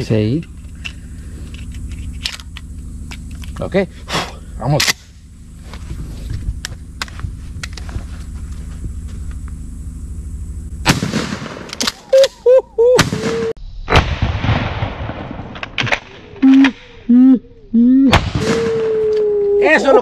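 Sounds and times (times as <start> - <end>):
low steady rumble: 0.0 - 20.0
shotgun blasts: 10.8 - 12.1, 13.0 - 17.0, 18.1 - 18.9
loud cracks: 10.8 - 12.4, 13.0 - 17.1, 18.1 - 19.0.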